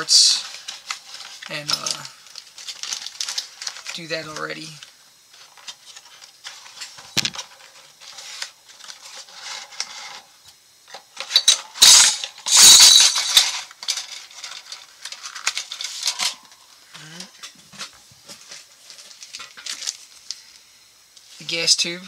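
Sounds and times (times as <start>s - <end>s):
metal parts clinking: 0.4s - 2.1s, 11.2s - 16.6s
packaging rustling: 0.4s - 4.0s, 18.3s - 20.4s.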